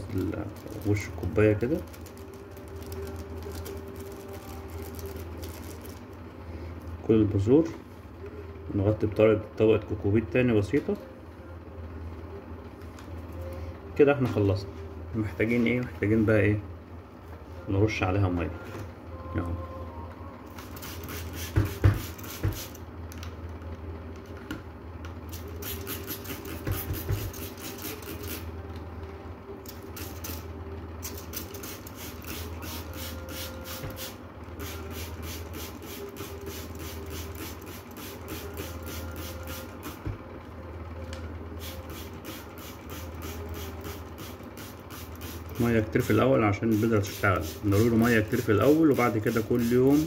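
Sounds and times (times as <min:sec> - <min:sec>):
steady low hum: 0:00.0 - 0:50.0
spray bottle misting water: 0:25.6 - 0:28.4.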